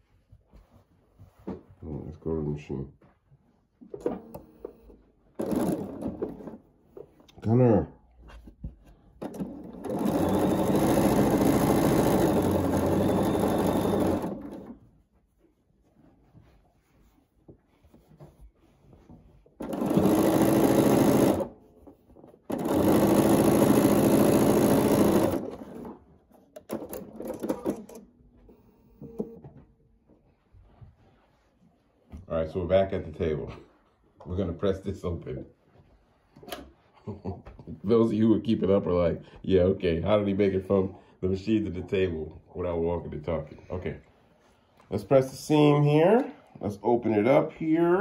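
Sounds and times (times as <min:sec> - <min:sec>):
sewing machine stitching: 0:04.0 - 0:06.7, 0:09.2 - 0:14.9, 0:19.4 - 0:29.4.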